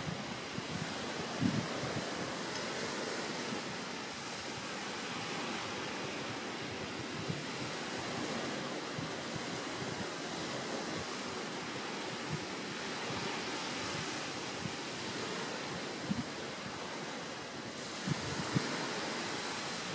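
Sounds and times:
rushing outdoor background noise: 0.0s - 19.9s.

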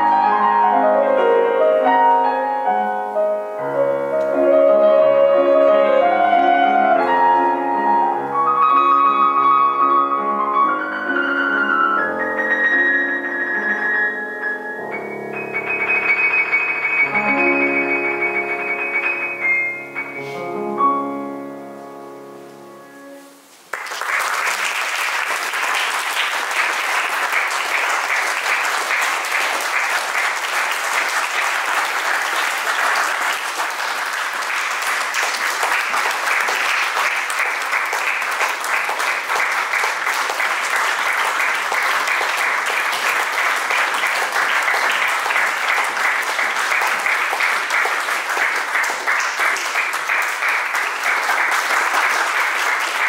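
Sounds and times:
piano chord ringing: 11.8s - 23.4s
audience applause: 23.7s - 53.0s.

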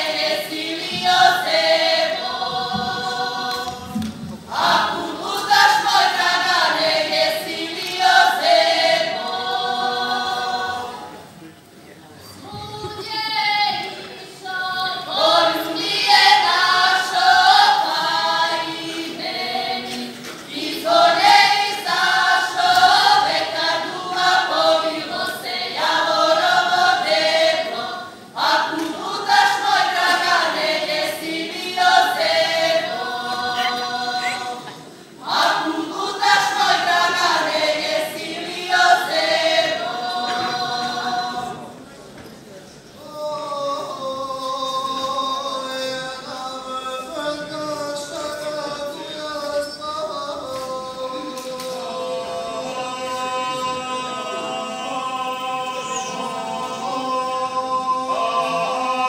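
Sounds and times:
women singing folk song unaccompanied: 0.0s - 11.3s, 12.4s - 41.8s.

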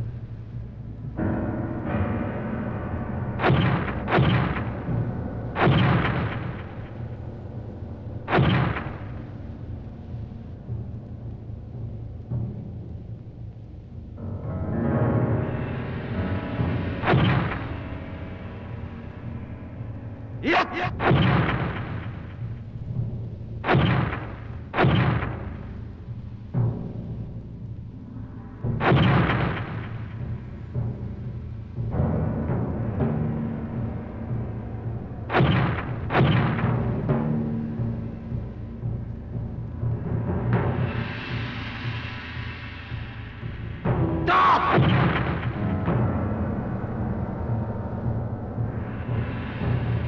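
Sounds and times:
sharp fight hits: 3.4s - 4.9s, 5.6s - 7.0s, 8.3s - 9.2s, 17.0s - 17.9s, 20.4s - 22.4s, 23.6s - 25.6s, 28.8s - 30.2s, 35.3s - 36.9s, 44.3s - 45.7s
heavy booming hits: 3.4s - 7.1s, 20.4s - 22.6s, 28.8s - 30.4s
heavy fight impacts: 5.6s - 6.9s, 8.3s - 9.3s, 20.4s - 22.4s, 23.6s - 25.6s, 44.3s - 45.7s.

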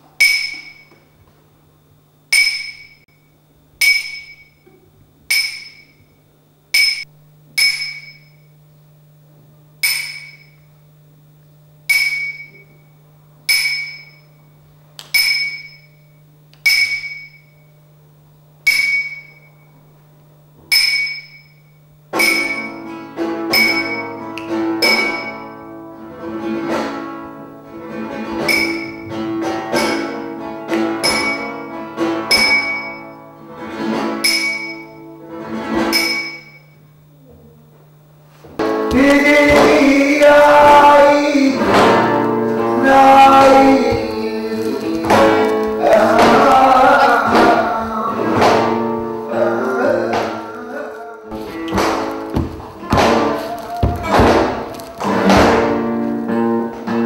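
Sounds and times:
high ringing note struck: 3.8s - 4.6s, 6.8s - 8.6s, 9.8s - 10.7s, 13.5s - 14.5s, 15.2s - 17.7s, 18.7s - 19.7s, 20.7s - 25.7s, 28.4s - 29.2s, 31.0s - 31.7s, 32.3s - 33.4s, 34.2s - 35.2s, 35.9s - 36.9s.

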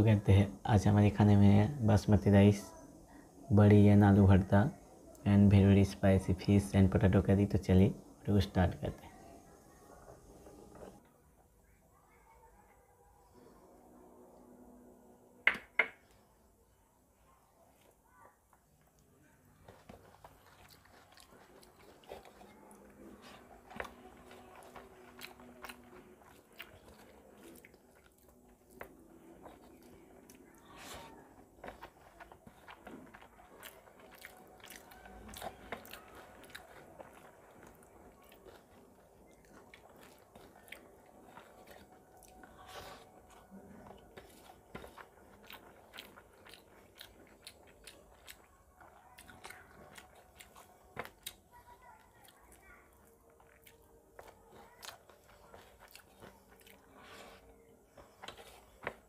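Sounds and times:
fingers squishing rice: 17.7s - 59.0s
chewing with wet smacks: 18.9s - 59.0s.

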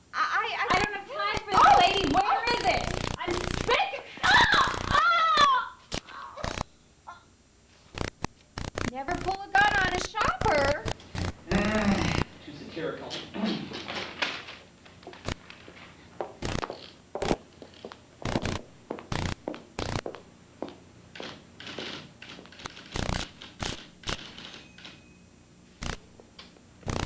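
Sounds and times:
typewriter keystroke clacks: 21.2s - 25.0s.

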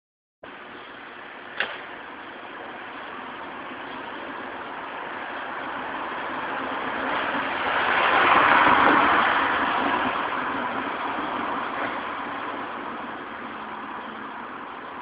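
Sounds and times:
vehicle driving past: 3.6s - 15.0s.

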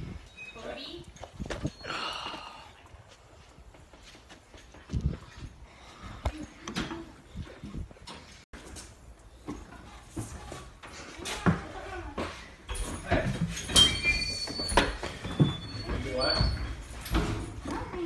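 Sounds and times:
metal door latch squeaking: 13.6s - 16.7s.

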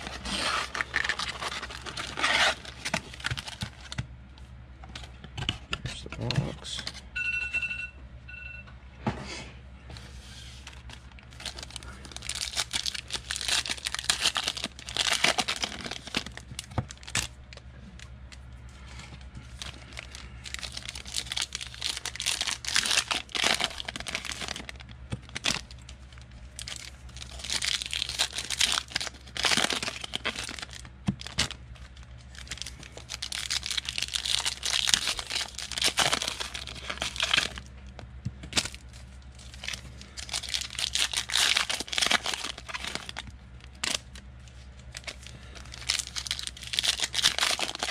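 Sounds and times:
foil wrappers tearing and crinkling: 0.0s - 4.0s, 10.6s - 17.4s, 19.4s - 37.7s, 38.5s - 47.9s
low steady hum: 0.0s - 47.9s.

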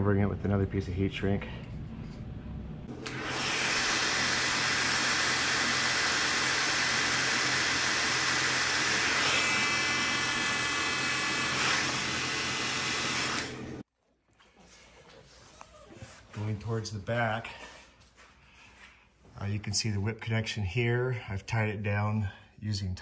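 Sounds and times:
heat gun blowing: 2.9s - 13.9s.

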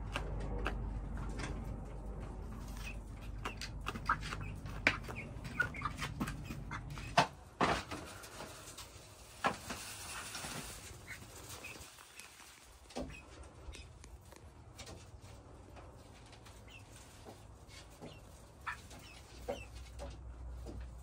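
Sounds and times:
low rumble: 0.0s - 3.8s
chicks peeping: 0.0s - 21.0s.

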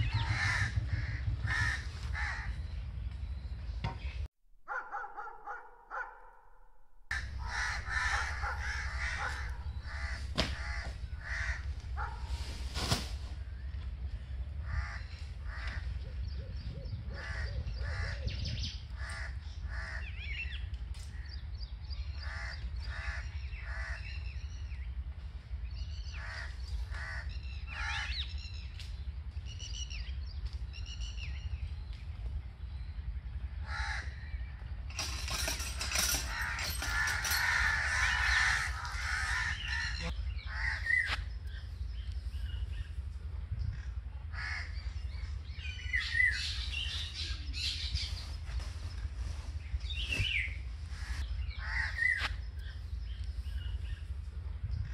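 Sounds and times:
crows cawing: 0.1s - 2.6s, 7.1s - 12.1s, 14.6s - 15.9s, 17.2s - 18.3s, 19.0s - 20.1s, 22.2s - 24.1s, 26.2s - 28.2s, 33.6s - 34.2s, 36.3s - 41.2s, 44.3s - 44.8s, 51.0s - 52.3s.

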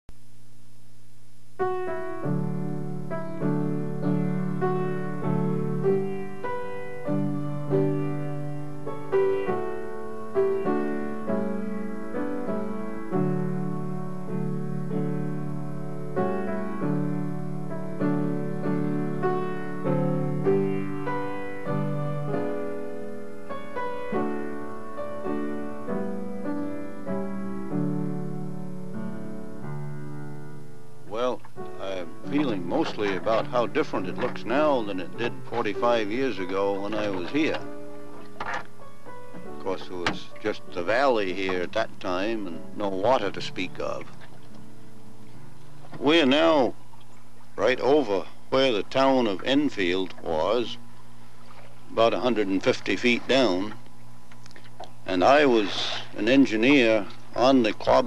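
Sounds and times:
slow solo piano: 1.6s - 47.5s.

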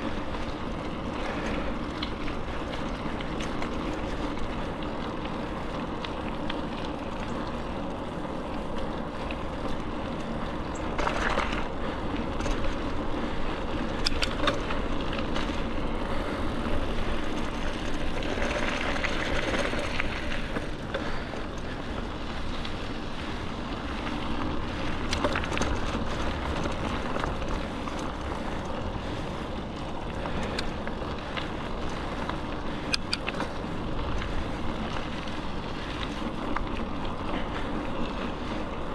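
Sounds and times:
bike clicking and rattling: 0.0s - 38.9s
bike tyres rumbling on dirt: 0.0s - 38.9s.

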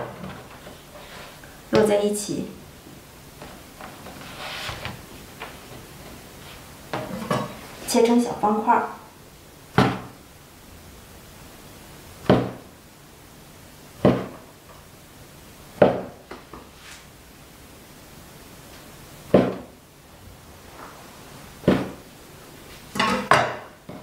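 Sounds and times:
cleaver chopping on wooden board: 12.3s - 12.6s, 14.0s - 14.4s, 15.8s - 16.1s, 19.4s - 19.7s.

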